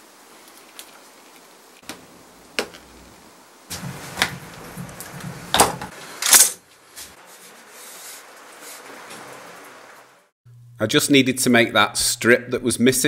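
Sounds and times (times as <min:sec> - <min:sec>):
wood rubbing and scraping: 0:02.6 - 0:06.2, 0:06.8 - 0:09.7.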